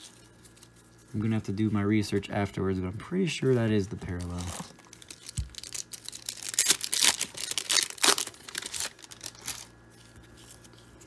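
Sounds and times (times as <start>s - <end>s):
foil pack tearing and crinkling: 4.1s - 11.0s.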